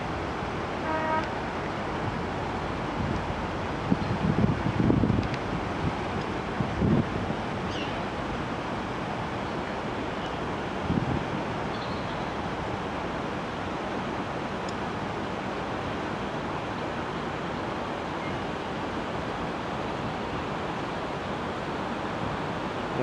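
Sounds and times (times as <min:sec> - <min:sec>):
steady rushing noise: 0:00.0 - 0:11.7.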